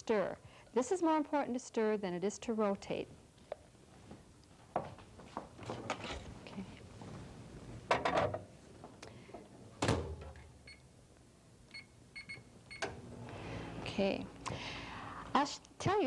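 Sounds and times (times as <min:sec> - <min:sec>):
microwave keypad beeps: 0:11.7 - 0:12.9.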